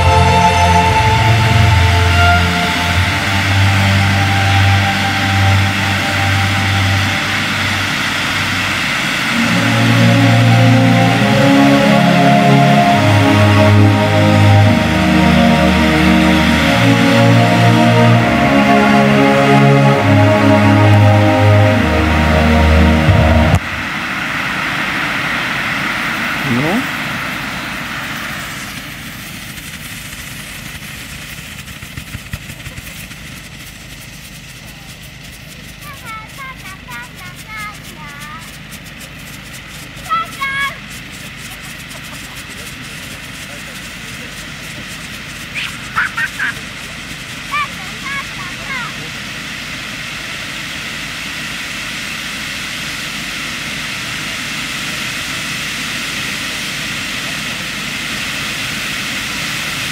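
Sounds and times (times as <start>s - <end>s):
low rushing: 0.0s - 29.2s
fireworks fountains hissing: 0.0s - 59.9s
sharp crackles: 28.4s - 48.9s.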